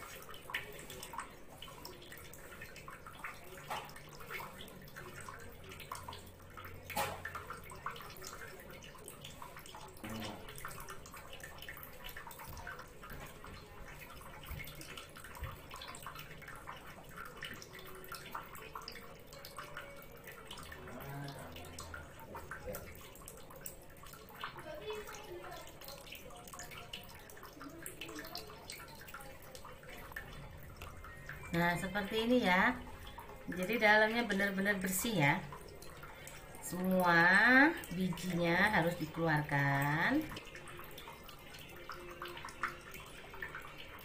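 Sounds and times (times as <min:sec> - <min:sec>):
wet squelching with small clicks: 0:00.0 - 0:44.0.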